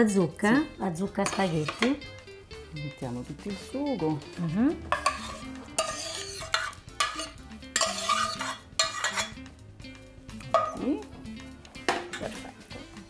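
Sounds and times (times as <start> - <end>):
metal utensil scraping pan: 1.1 - 2.1, 4.9 - 9.4.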